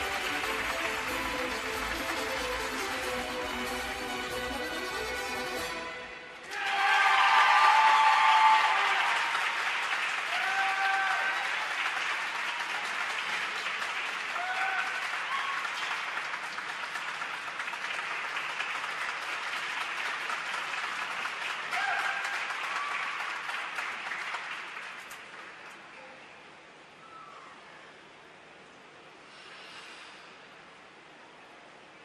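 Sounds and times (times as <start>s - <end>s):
audience applauding: 0.0s - 5.8s, 6.4s - 25.7s
shouted cheers: 6.4s - 13.0s, 14.2s - 15.9s, 21.7s - 23.3s.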